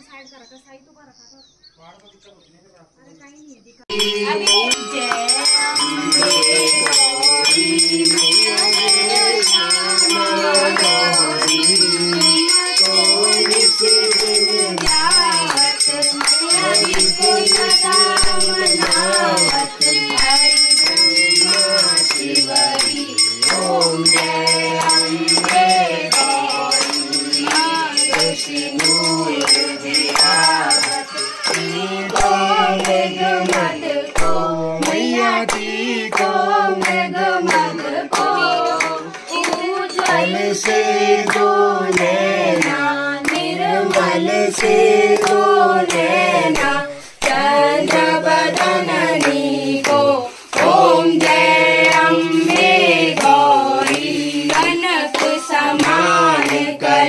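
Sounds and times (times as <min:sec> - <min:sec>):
clapped beat: 0:03.9 - 0:57.0
person singing over music: 0:03.9 - 0:57.0.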